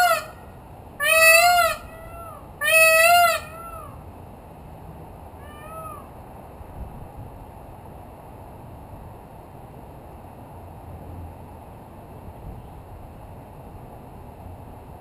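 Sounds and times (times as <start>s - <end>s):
peacock calling: 0.0s - 4.0s, 5.4s - 6.2s.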